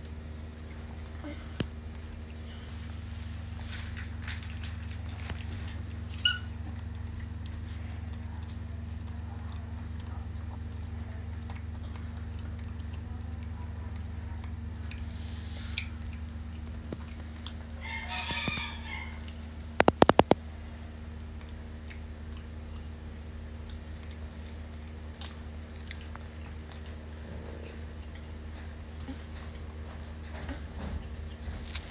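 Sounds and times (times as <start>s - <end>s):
steady low hum: 0.0s - 31.9s
sharp clicks: 19.8s - 20.4s.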